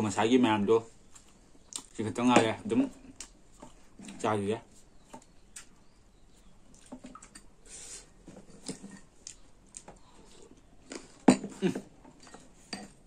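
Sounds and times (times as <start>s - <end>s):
chewing and mouth sounds: 5.0s - 7.4s.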